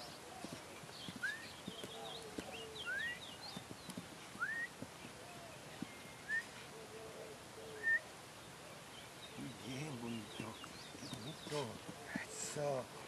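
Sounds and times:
bird rising whistled calls: 1.2 - 1.6, 2.8 - 3.2, 4.4 - 4.8, 6.2 - 6.6, 7.7 - 8.0
lower wavering bird call: 4.4 - 4.7, 7.7 - 8.1.

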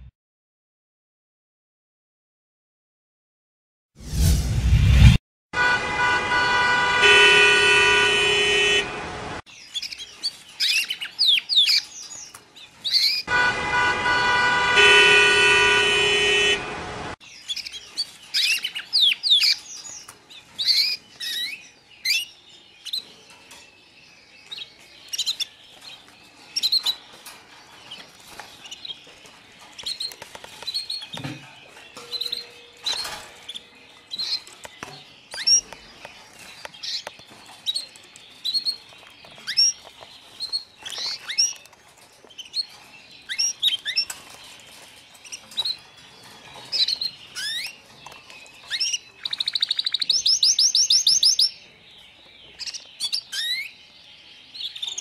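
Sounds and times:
road traffic noise: 4.2 - 9.5, 13.2 - 17.2
car horns honking: 5.6 - 9.4, 13.3 - 17.2
small birds chirping: 9.5 - 13.3, 17.1 - 55.0.

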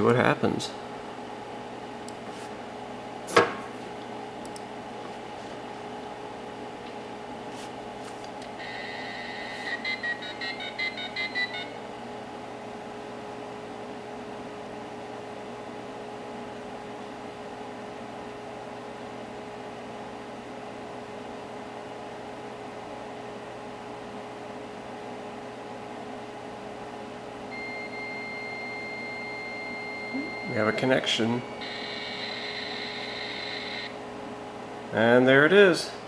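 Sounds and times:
computer hum: 3.9 - 14.3, 27.5 - 35.2
steady dial tone: 8.6 - 11.7, 27.5 - 34.0
touch-tone dialing beeps: 9.0 - 11.8.

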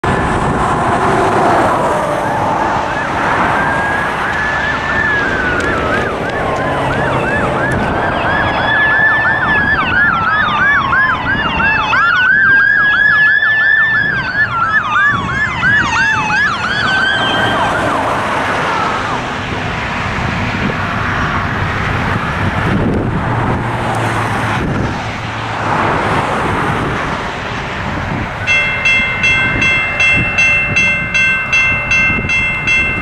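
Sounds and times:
siren wailing: 1.8 - 19.2
siren yelping: 1.9 - 19.2.

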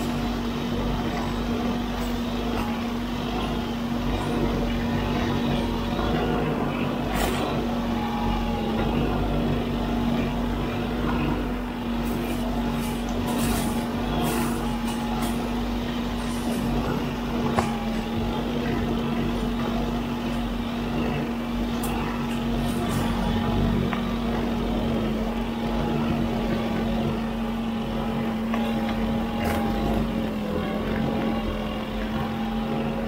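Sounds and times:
machine hum: 0.0 - 33.0.

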